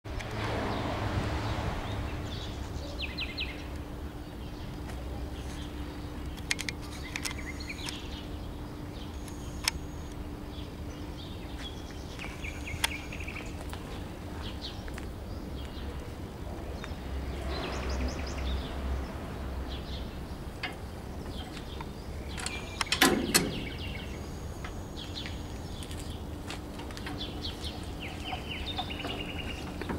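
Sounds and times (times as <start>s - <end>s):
birds chirping: 0.7s - 29.9s
sharp clicks: 6.2s - 8.0s, 12.8s - 13.0s, 20.6s - 23.9s.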